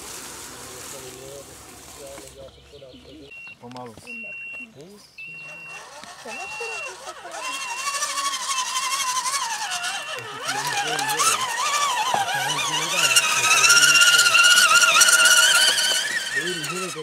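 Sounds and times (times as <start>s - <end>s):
toy truck electric motor whining: 5.2s - 17.0s.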